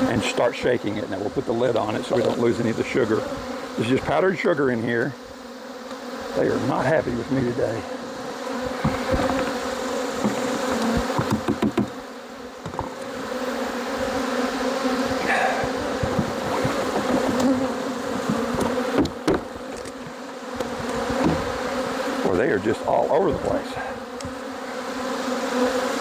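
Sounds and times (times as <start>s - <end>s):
bees buzzing: 0.0s - 26.0s
short knocks: 10.2s - 11.9s, 18.2s - 21.5s.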